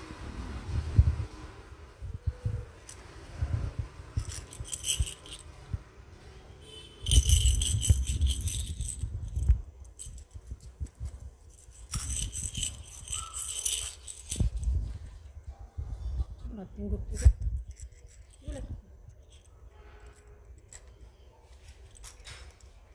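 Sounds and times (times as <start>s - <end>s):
plastic rattle toys rattling: 4.2s - 5.5s, 6.8s - 15.0s, 17.1s - 22.9s.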